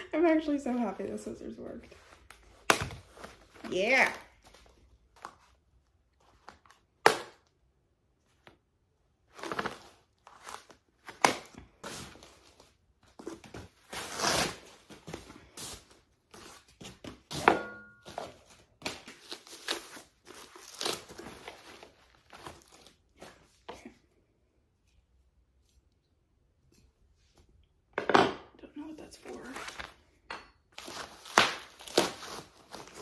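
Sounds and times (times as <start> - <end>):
packing wrap crinkling and rustling: 18.0 - 23.5, 30.8 - 33.0.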